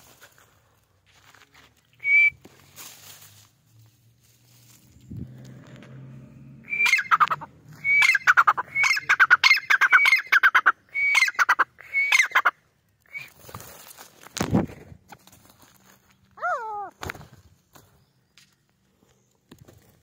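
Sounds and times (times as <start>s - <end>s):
francolin calling: 6.5s - 13.4s.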